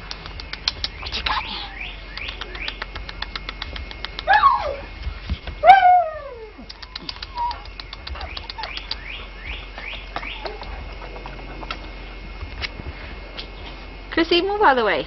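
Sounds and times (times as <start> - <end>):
puppy whining yelps: 4.3 - 4.9, 5.6 - 9.1.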